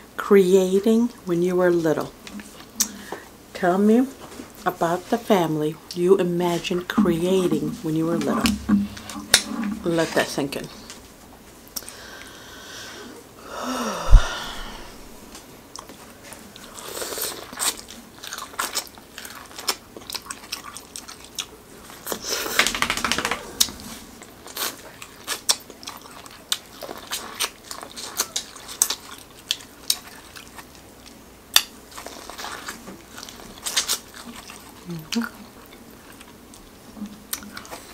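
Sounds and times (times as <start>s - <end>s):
low thump: 14.1s - 15.0s
chewing corn on the cob: 15.7s - 37.9s.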